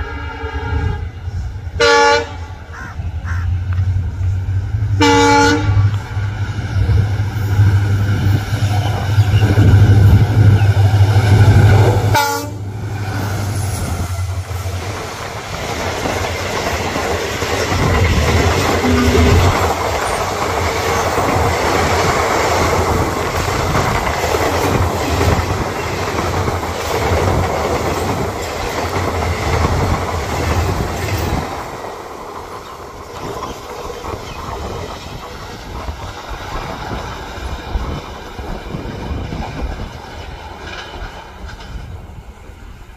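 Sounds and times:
locomotive horn blast: 1.8 - 2.4, 5.0 - 6.0, 12.1 - 12.6, 18.8 - 20.1
train coaches clattering over rails: 6.4 - 42.8.

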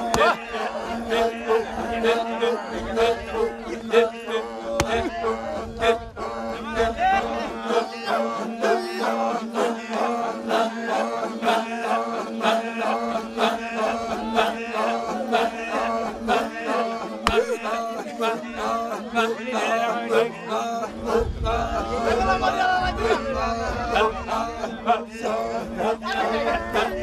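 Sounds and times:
voices chanting: 0.0 - 27.0
sharp percussive beats: 4.8 - 5.1.

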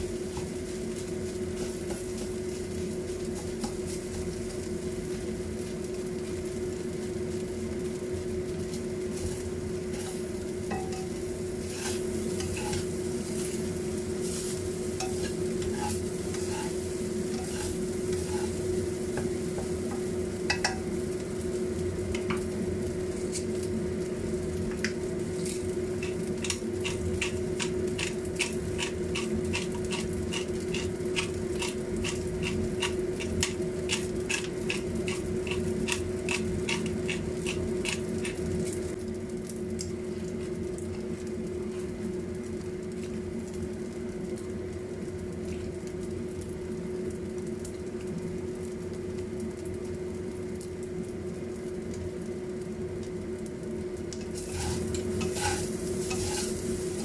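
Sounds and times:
steady hum: 0.0 - 43.4, 53.2 - 57.0
oil sizzling and bubbling: 0.0 - 57.0
spatula scraping a wok: 9.2 - 18.7, 25.5 - 38.5, 54.3 - 57.0.

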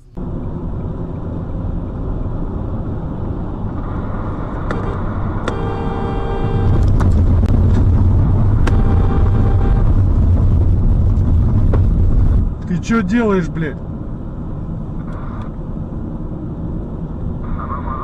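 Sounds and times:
vehicle engine and road rumble: 0.0 - 18.0
held pitched tone: 8.6 - 9.9.

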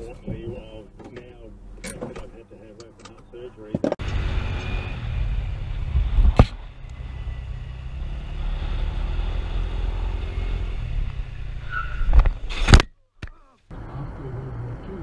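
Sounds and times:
wind rumble on microphone: 5.7 - 6.7.

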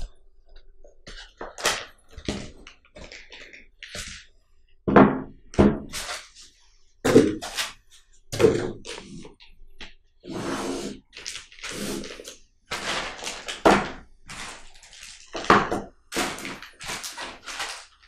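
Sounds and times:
thunks and knocks on wooden table: 4.9 - 5.9
plastic bag rustling: 10.9 - 18.0.

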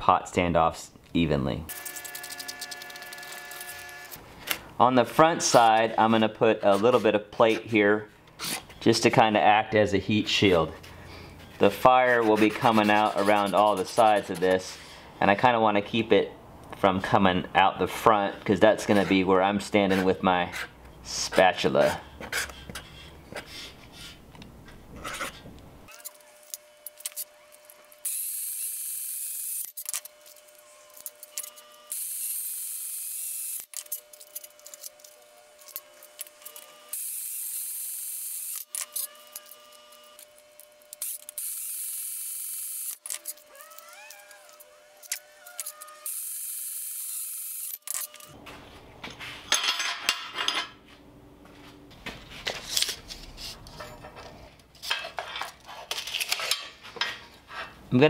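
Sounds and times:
band saw motor whine: 1.7 - 4.2.

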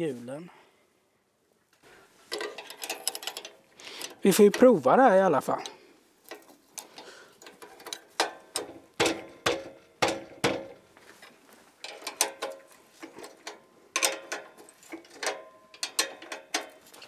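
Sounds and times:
spanners clinking on steel bolts: 2.3 - 4.9, 5.5 - 10.8, 11.8 - 17.0.

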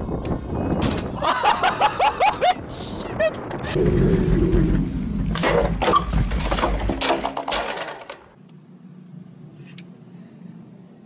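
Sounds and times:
wind rumble on microphone: 0.0 - 6.4
bicycle rattling and clattering: 5.0 - 8.4.

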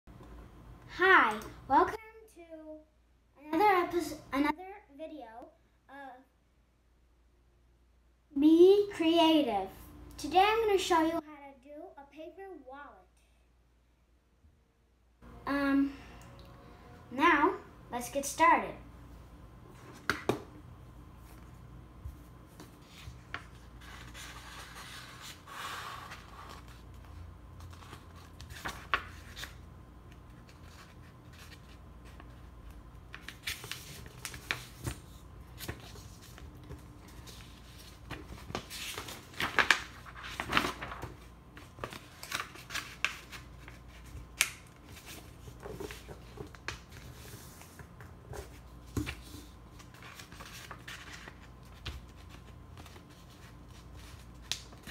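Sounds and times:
paper rustling and folding: 21.3 - 54.9.

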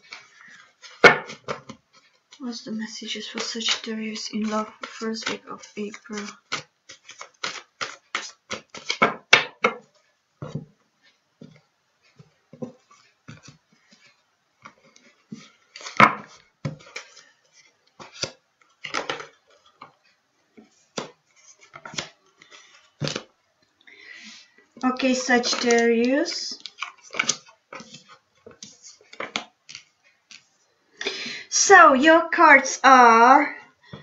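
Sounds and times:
cards being shuffled: 3.3 - 9.2, 12.8 - 19.9, 20.9 - 23.3, 24.8 - 30.5.

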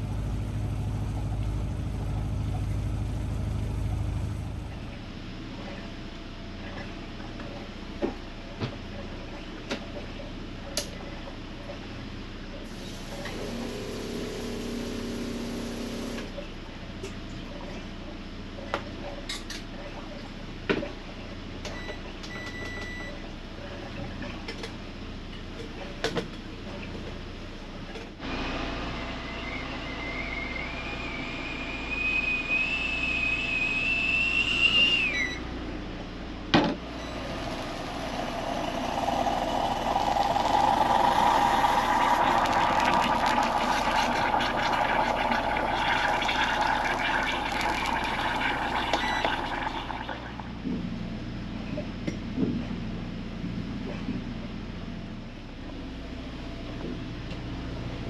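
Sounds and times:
moka pot hissing and gurgling: 12.7 - 16.3, 36.9 - 50.5
kettle whistling: 29.0 - 35.4, 36.9 - 50.5.

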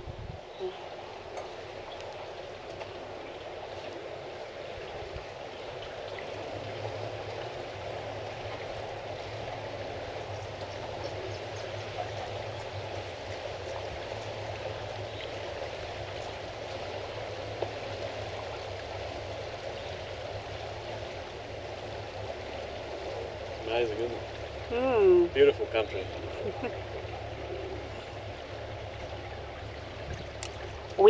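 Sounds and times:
low steady hum: 0.0 - 31.0
water rushing: 0.0 - 31.0.

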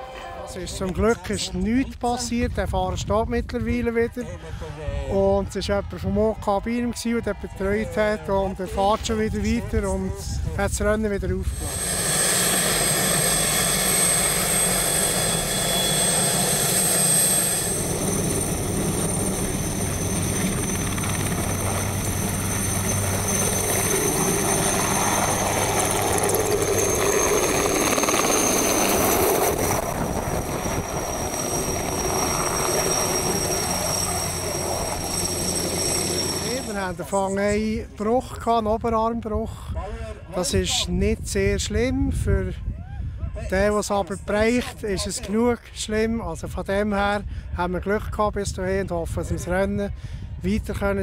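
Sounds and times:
helicopter turbine whine: 8.5 - 38.4
helicopter rushing noise: 10.8 - 38.1.

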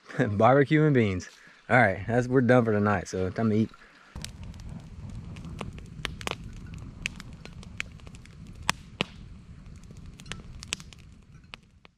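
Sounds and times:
campfire crackling and popping: 0.2 - 11.9
steady low rumble: 4.2 - 11.9.

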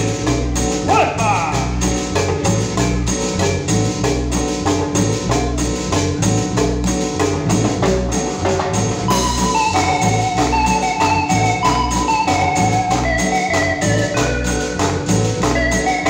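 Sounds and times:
cumbia band playing: 0.0 - 16.0.

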